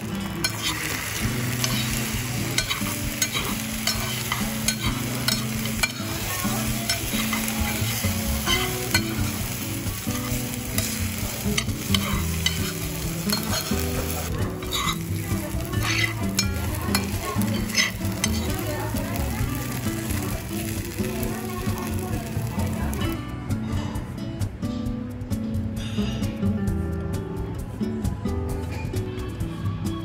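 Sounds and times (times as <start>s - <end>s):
rice sizzling on hot plate: 0.0s - 23.2s
metal spoon scraping iron: 0.4s - 9.4s, 11.6s - 13.8s, 14.6s - 15.1s, 15.7s - 18.5s
spoon clicking against iron: 2.6s - 6.2s, 11.6s - 12.7s, 15.7s - 18.6s.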